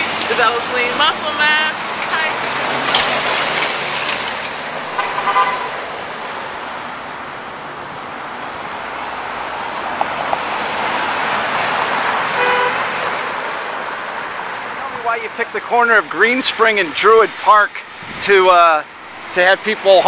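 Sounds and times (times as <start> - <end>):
cars passing: 0.0 - 20.0
car horns tooting: 4.9 - 5.9, 12.3 - 13.2.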